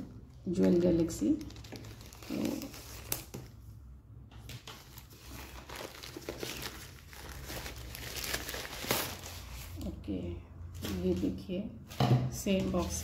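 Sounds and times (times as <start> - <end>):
plastic bag crinkling: 0.4 - 3.6, 4.7 - 9.9
scissors cutting plastic bag: 0.5 - 3.4.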